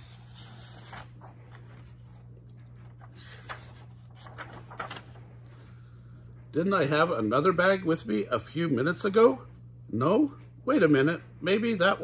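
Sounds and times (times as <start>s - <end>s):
book pages rustling: 0.0s - 5.6s
low steady hum: 0.0s - 12.0s.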